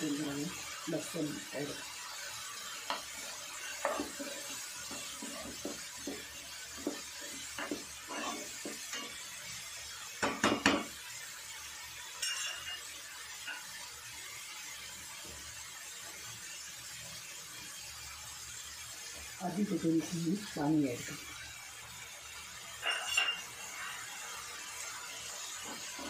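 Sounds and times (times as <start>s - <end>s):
food sizzling in a pan: 0.0s - 26.0s
metal spoon scraping a pan: 1.6s - 9.4s, 12.0s - 13.8s, 22.7s - 24.5s, 25.2s - 26.0s.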